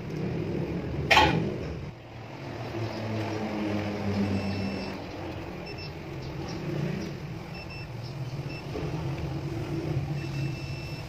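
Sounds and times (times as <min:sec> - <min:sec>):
multimeter continuity beeps: 0:04.3 - 0:05.0, 0:05.6 - 0:06.0, 0:07.5 - 0:08.8, 0:10.1 - 0:11.0.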